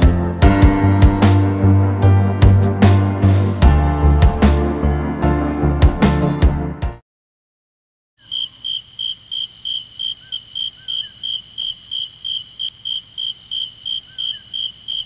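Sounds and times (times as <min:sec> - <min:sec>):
background music: 0:00.0 - 0:07.0
crickets chirping: 0:08.2 - 0:15.0
high insect trill: 0:08.2 - 0:15.0.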